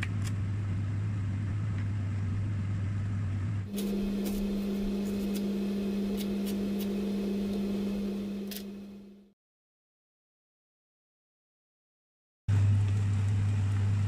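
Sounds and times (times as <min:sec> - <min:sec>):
loud appliance hum: 0:00.0 - 0:09.4, 0:12.5 - 0:14.0
knife slicing onion on board: 0:03.7 - 0:07.1.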